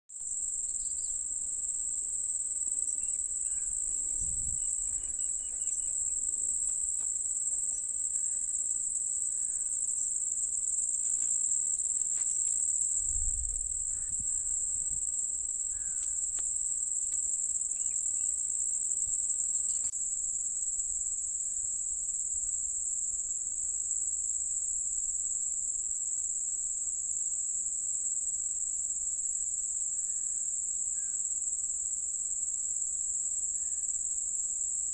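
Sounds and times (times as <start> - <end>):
insects chirring: 0.2 - 22.9, 28.4 - 34.9.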